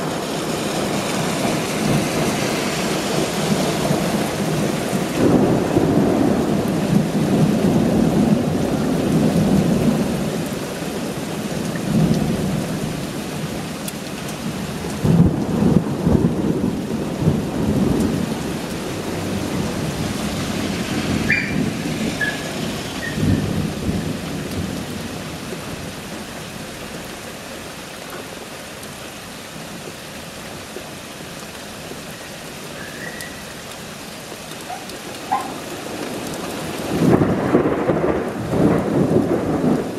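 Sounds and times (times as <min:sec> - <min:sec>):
steady rain: 0:00.0 - 0:39.9
thunder rolling: 0:03.4 - 0:10.3, 0:15.0 - 0:25.2, 0:36.0 - 0:39.9.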